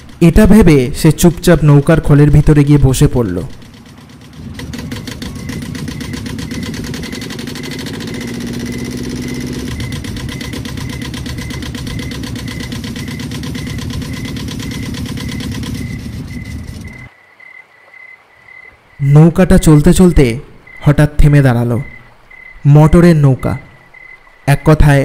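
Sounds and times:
motorboat engine chugging: 0.0s - 17.1s.

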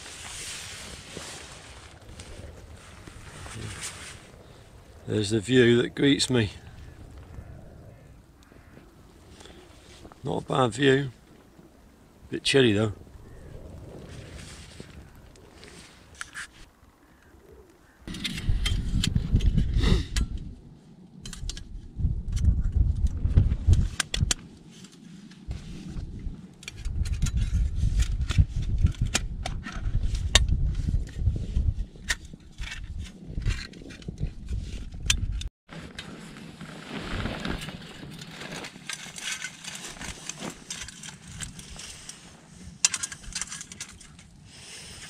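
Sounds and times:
metal stove parts clicking and scraping: 38.6s - 45.0s.

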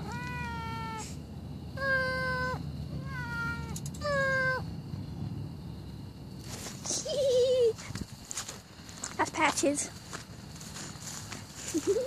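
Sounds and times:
cat meowing: 0.0s - 1.2s, 1.8s - 4.6s.

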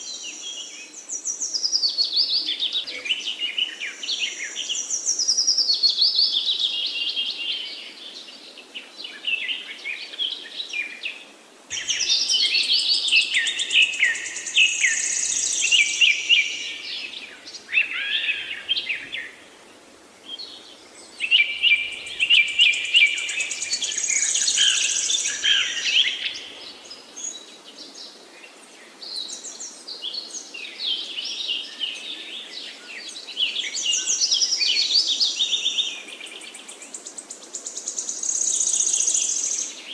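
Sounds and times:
birds chirping and trilling: 11.7s - 39.9s.

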